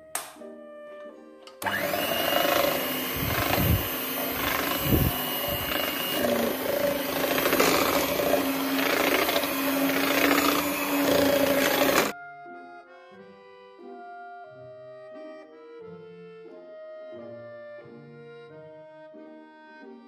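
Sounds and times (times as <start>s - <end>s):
beaters churning batter: 1.6s - 12.1s
electric hand mixer humming: 1.6s - 12.1s.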